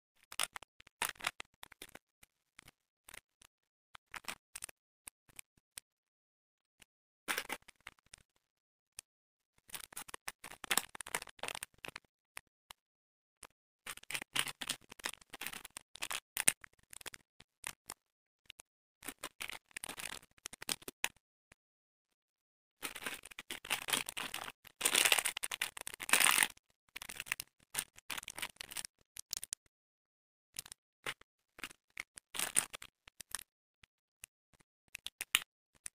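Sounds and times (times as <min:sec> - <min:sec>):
plastic wrappers crinkling: 0:13.9 - 0:17.1, 0:22.8 - 0:29.5, 0:31.6 - 0:33.4.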